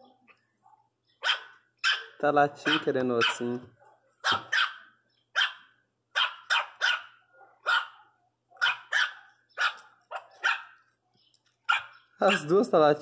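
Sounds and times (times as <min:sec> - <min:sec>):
puppy high-pitched yapping: 0:01.2 - 0:03.5, 0:04.2 - 0:10.8, 0:11.7 - 0:12.5.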